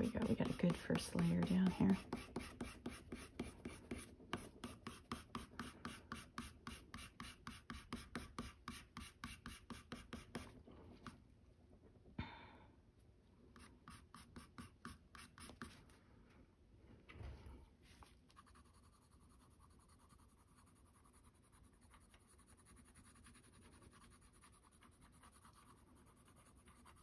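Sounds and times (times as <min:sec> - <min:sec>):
colored pencil scratching on paper: 0:00.0 - 0:11.2, 0:13.6 - 0:15.8, 0:18.3 - 0:27.0.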